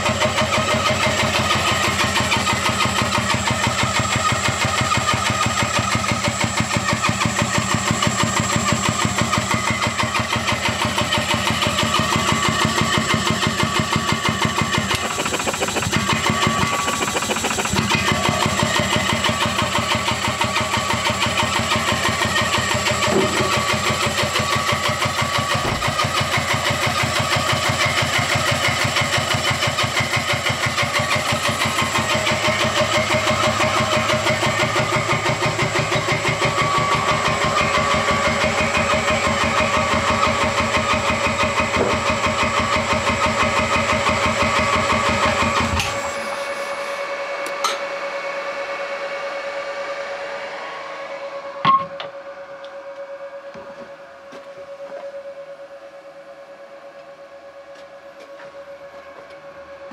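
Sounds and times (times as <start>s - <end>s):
air compressor pumping: 0.0s - 47.7s.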